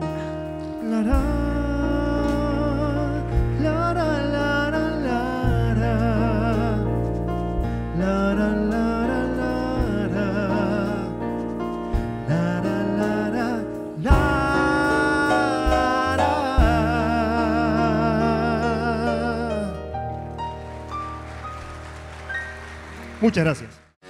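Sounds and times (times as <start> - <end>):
man singing with vibrato: 0.0 - 7.2, 7.9 - 11.5, 12.2 - 20.0
live band playing: 0.0 - 23.9.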